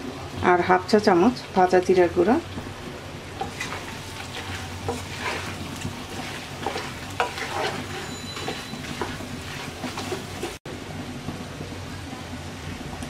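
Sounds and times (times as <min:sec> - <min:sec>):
meat sizzling in a pan: 0:03.4 - 0:10.6
spatula scraping a pan: 0:03.4 - 0:10.6.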